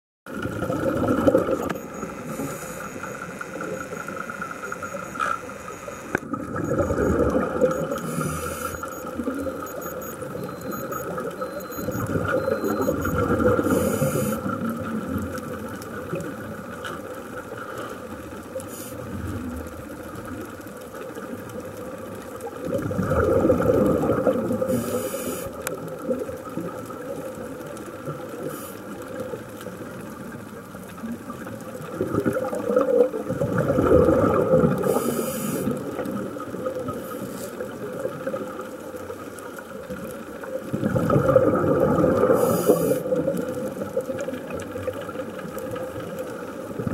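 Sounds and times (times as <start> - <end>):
exhaled bubbles underwater: 0.3 - 46.9
steady hum: 0.8 - 14.6
regulator inhalation hiss: 2.2 - 3.4, 8.0 - 8.8, 13.7 - 14.5, 24.8 - 25.6, 34.8 - 35.8, 42.4 - 43.0.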